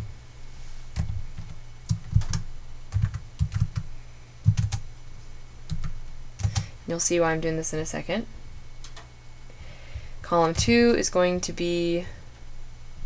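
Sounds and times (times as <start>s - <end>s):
typing on computer keyboard: 1.0s - 4.8s, 5.7s - 6.7s.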